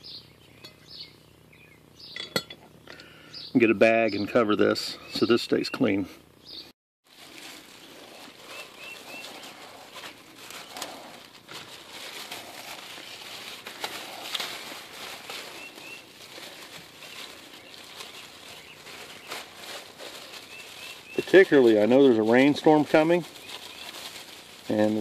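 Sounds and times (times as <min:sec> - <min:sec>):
plastic bag rustling: 0:07.0 - 0:25.0.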